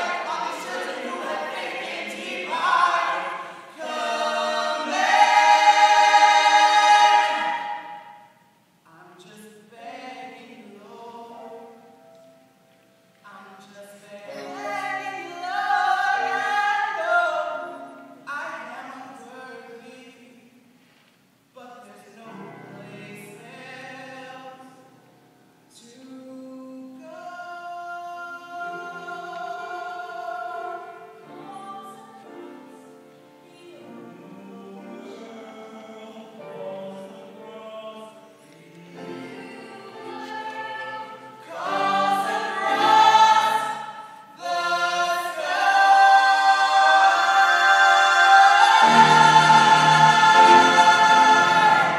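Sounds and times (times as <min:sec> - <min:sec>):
mixed voices singing in harmony: 0:00.0 - 0:08.3, 0:08.9 - 0:11.8, 0:13.3 - 0:20.2, 0:25.8 - 0:51.9.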